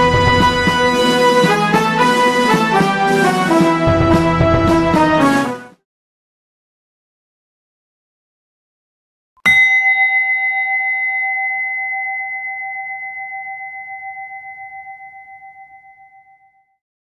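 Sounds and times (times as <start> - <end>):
struck bell-like tone: 9.4 - 16.8.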